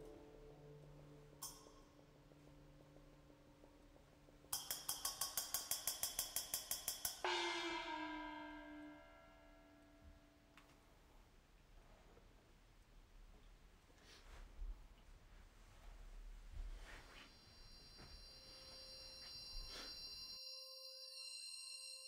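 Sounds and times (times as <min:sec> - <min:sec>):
rapid metallic ringing: 0:04.5 - 0:09.8.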